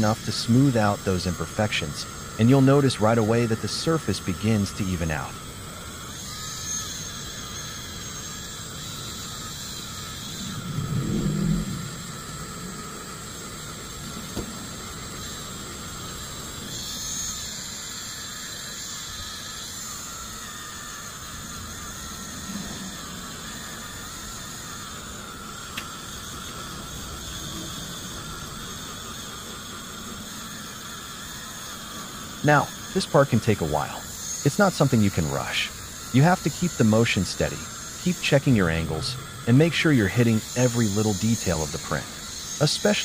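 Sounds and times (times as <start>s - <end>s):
rotary tool high-pitched whine: 0.0s - 43.0s
low rumble: 10.5s - 12.8s.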